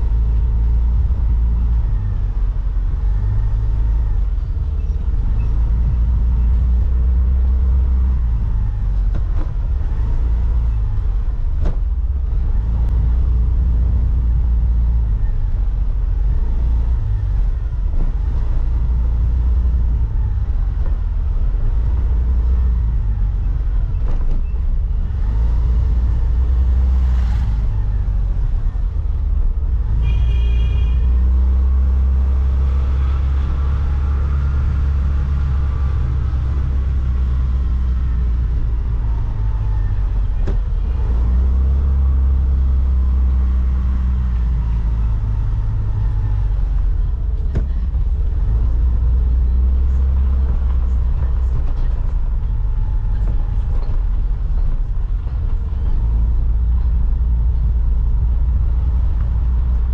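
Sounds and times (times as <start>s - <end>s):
wind rumble on camera: 0.0s - 59.9s.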